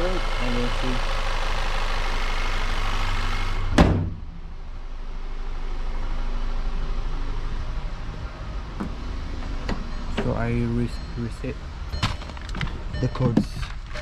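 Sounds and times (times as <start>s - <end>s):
car hood slamming: 3.7s - 4.3s
car engine idling: 4.2s - 14.0s.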